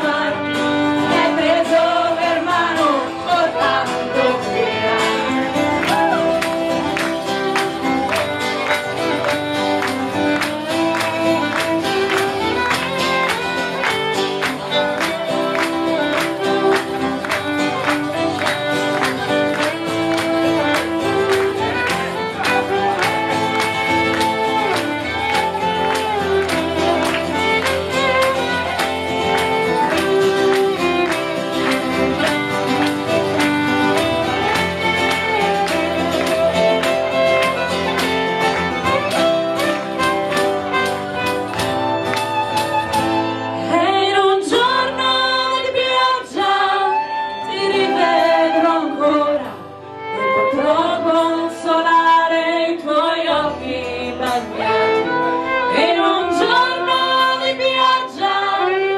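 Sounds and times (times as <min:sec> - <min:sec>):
women singing: 0:00.0 - 0:07.2, 0:43.6 - 0:58.9
strummed acoustic guitar: 0:00.0 - 0:46.6
fiddle: 0:00.0 - 0:58.9.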